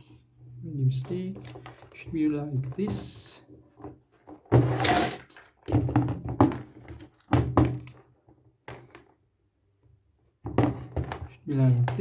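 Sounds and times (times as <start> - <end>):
metal rods thunking on wooden table: 4.6 - 8.0.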